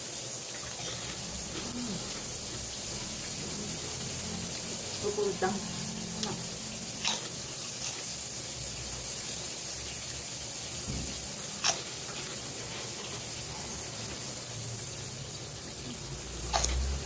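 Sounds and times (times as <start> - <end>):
oil sizzling in a pan: 0.0 - 17.0
cracker crunch bite: 11.5 - 12.0, 16.4 - 17.0.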